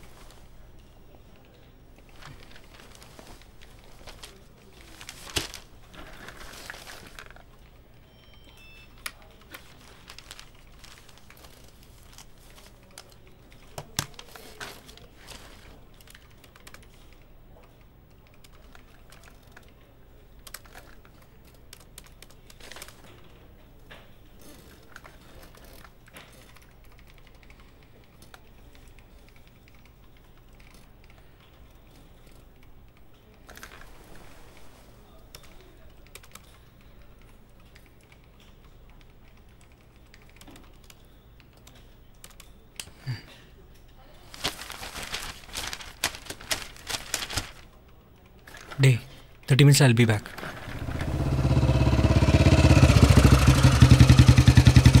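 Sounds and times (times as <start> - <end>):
computer keyboard typing: 16.0 - 23.3, 24.9 - 33.7, 35.3 - 42.9.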